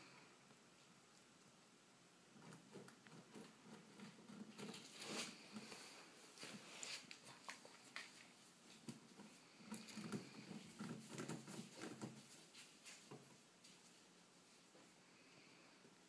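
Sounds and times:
chinchillas moving in cage: 0:02.4 - 0:14.0.

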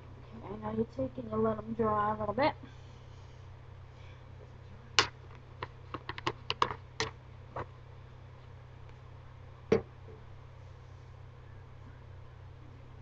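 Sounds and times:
sharp clicks and taps: 0:05.0 - 0:07.1.

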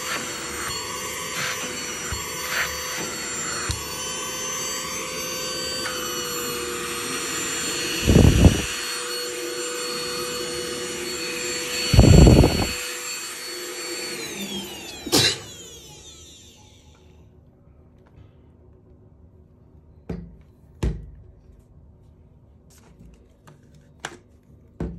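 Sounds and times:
handheld vacuum cleaner whine: 0:00.0 - 0:17.2.

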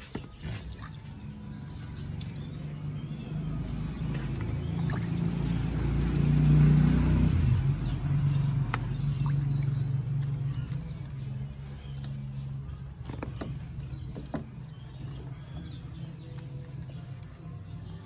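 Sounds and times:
vehicle engine passing by: 0:01.3 - 0:13.0.

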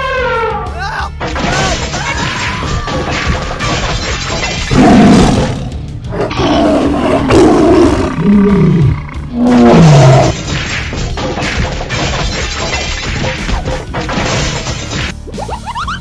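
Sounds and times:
background music: 0:00.0 - 0:16.0
animal roars: 0:04.7 - 0:10.4.

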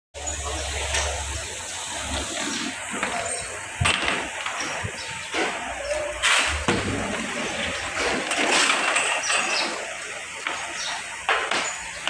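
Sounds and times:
plastic trays clattering: 0:06.3 - 0:09.9.

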